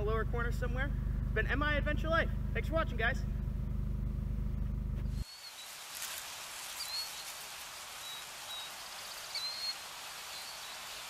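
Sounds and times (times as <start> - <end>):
steady soft hiss: 4.6 - 11.0
bird chirps: 5.1 - 5.8, 6.7 - 11.0.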